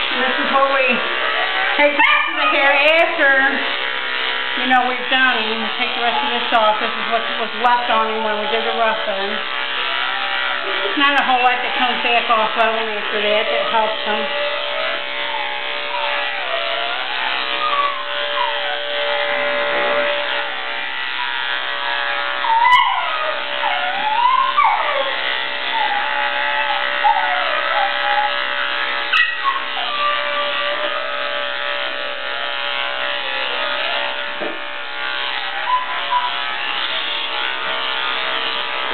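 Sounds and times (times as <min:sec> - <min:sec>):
electric clippers buzzing: 0:00.0 - 0:38.9
dog whining: 0:00.5 - 0:03.4, 0:13.2 - 0:19.0, 0:22.3 - 0:31.4, 0:35.3 - 0:37.2.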